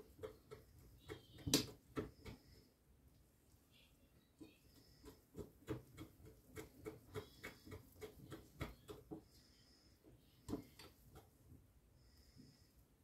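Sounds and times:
whisk tapping glass bowl: 5.0s - 9.2s.

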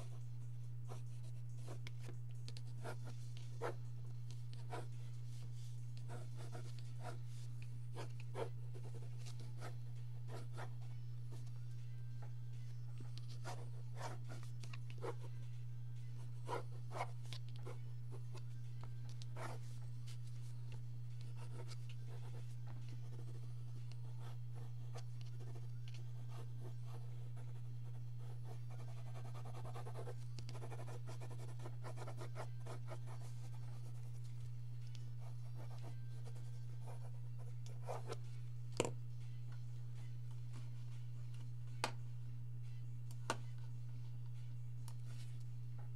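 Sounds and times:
low electrical hum: 0.0s - 45.9s
pencil scratching on paper: 2.6s - 3.8s, 4.5s - 10.7s, 21.2s - 34.2s.

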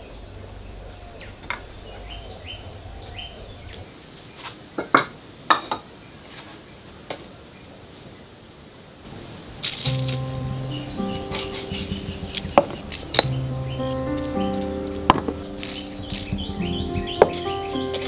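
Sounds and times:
bird chirps: 0.0s - 3.8s, 9.8s - 18.0s
high insect drone: 0.0s - 3.8s, 9.1s - 18.0s.

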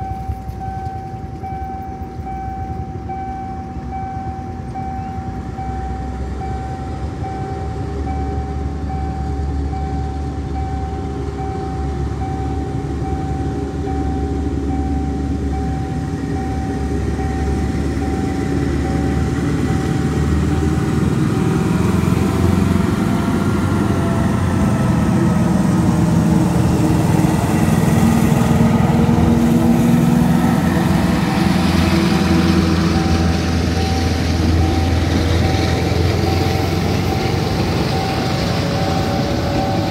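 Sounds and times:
train engine rumble: 0.0s - 39.9s
train wheels rattling on rail: 8.0s - 39.9s.

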